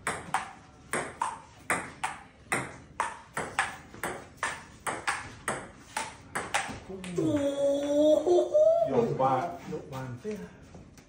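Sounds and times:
table tennis ball hits: 0.0 - 7.4.

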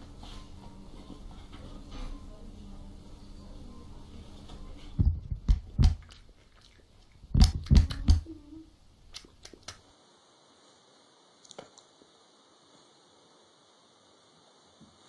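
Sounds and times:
sharp knocks and thumps: 5.0 - 6.2.

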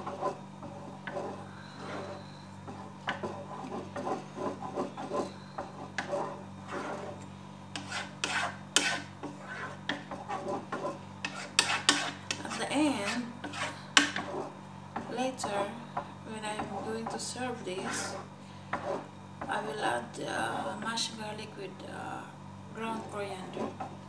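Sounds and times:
wooden spoon scraping metal pot: 0.0 - 20.9, 22.8 - 24.0
steady low hum: 0.0 - 24.0.

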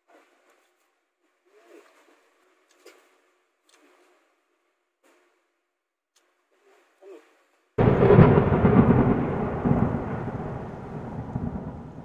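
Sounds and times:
deep cinematic boom: 7.8 - 12.0.

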